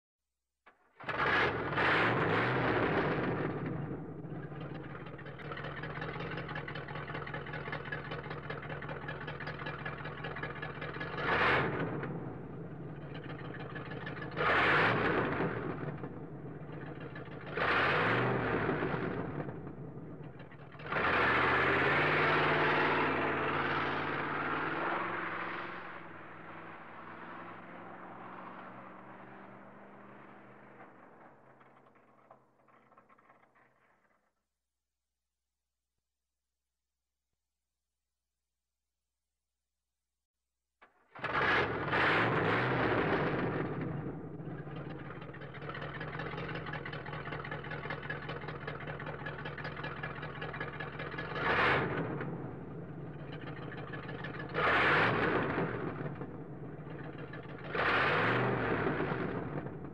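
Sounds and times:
car engine idling and revving: 0.7 - 34.2, 40.8 - 59.9.

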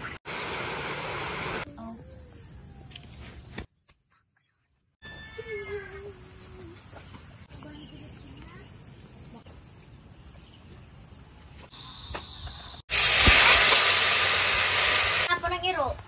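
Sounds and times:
lower insect tone: 1.6 - 12.8
insect chorus chirring: 5.0 - 12.8.

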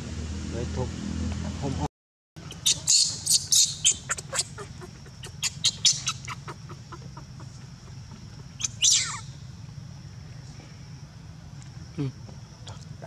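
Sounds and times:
baby monkey squeaking: 2.4 - 8.0, 8.6 - 9.4.

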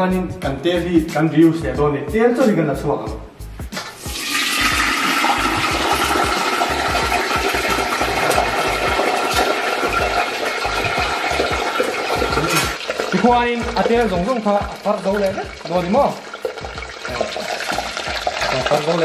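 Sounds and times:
hot oil sizzling into colander: 4.0 - 19.0.

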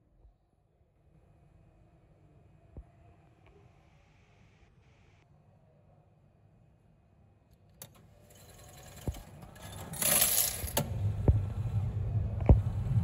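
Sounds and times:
machine mechanism whirring and clicking: 7.7 - 11.8
coins clattering: 7.9 - 10.8
low machine hum: 7.9 - 13.0.

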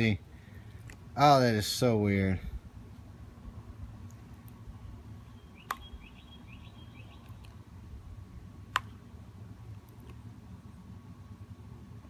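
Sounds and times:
low background rumble: 0.0 - 12.0
bird chirping: 5.2 - 7.6
sharp clicks: 5.6 - 5.9, 8.7 - 9.0.

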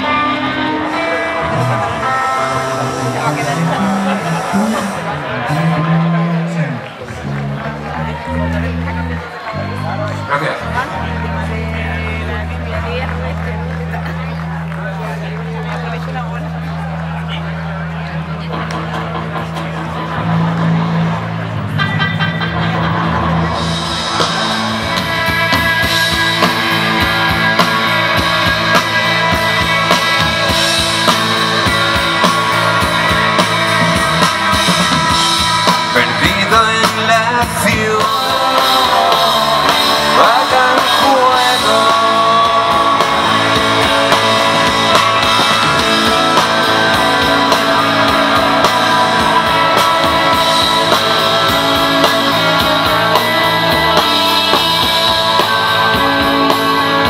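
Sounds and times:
person singing: 0.0 - 7.6, 29.3 - 57.0
electric guitars: 0.0 - 57.0.

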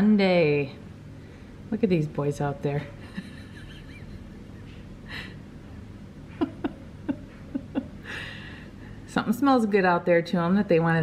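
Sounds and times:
person chuckling softly: 3.0 - 5.4, 6.3 - 8.6.

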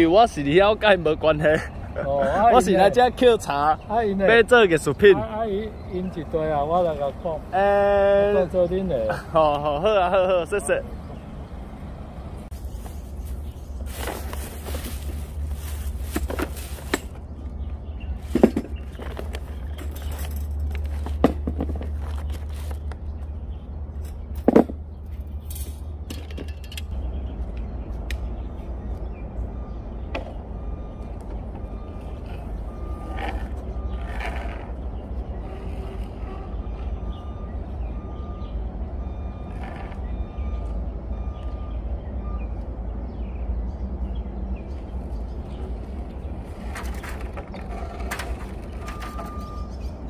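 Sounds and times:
plastic bags rustling: 12.6 - 17.1.

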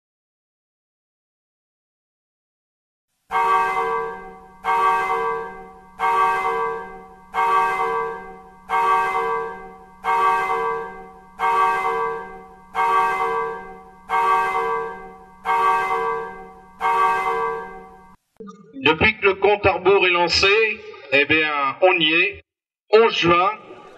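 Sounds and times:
church bell striking: 3.3 - 18.2.

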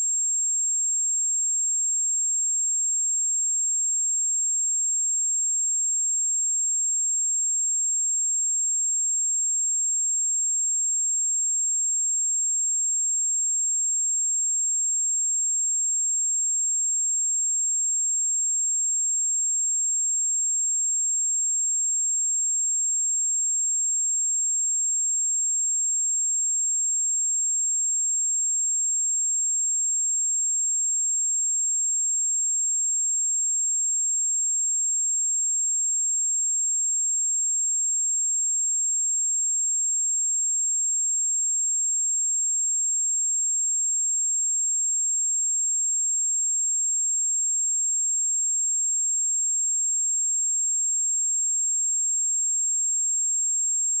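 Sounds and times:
high-pitched sine-wave test tone: 0.0 - 8.5.

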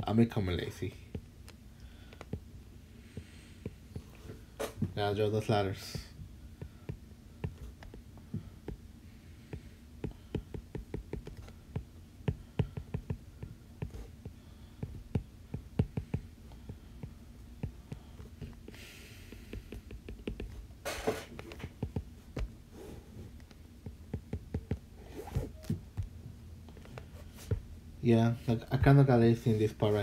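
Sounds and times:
steady low hum: 0.0 - 30.0
stylus tapping on glass screen: 9.5 - 14.0.

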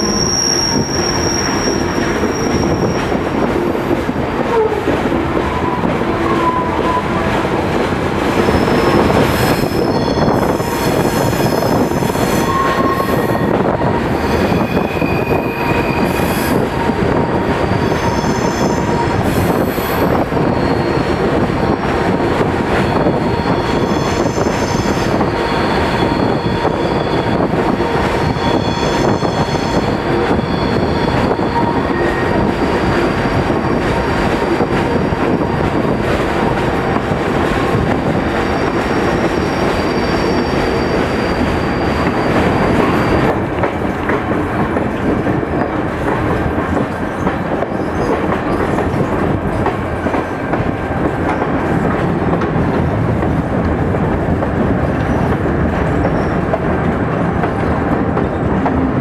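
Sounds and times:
high-pitched wheel squeal: 0.0 - 3.2, 8.4 - 21.8, 22.8 - 36.0, 38.4 - 43.3
train wheels rumbling on rails: 0.0 - 59.0.

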